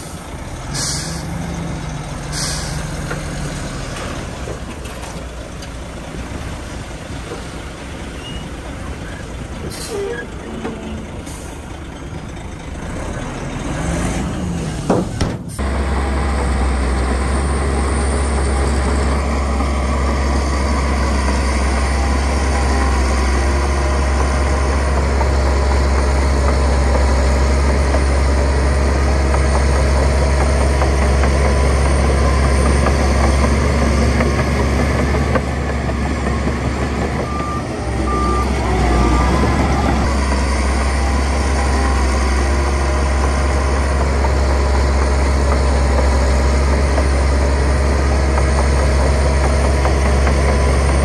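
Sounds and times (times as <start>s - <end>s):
heavy diesel engine running: 0.0s - 51.0s
reversing alarm beeps: 37.2s - 40.0s.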